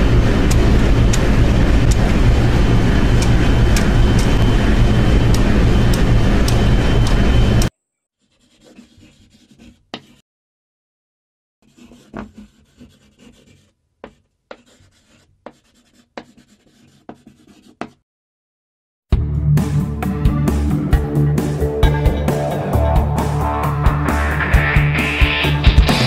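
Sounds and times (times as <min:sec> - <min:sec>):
marker scratching on whiteboard: 0:08.2 - 0:10.2, 0:11.6 - 0:18.0.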